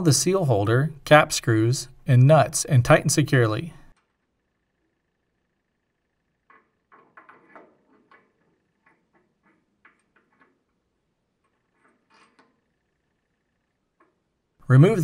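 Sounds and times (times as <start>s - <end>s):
faint metal clicks and knocks: 6.4s - 14.4s.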